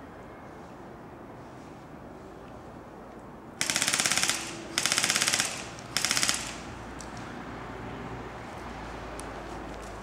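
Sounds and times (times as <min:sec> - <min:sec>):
airsoft gun firing bursts: 0:03.6 - 0:06.7.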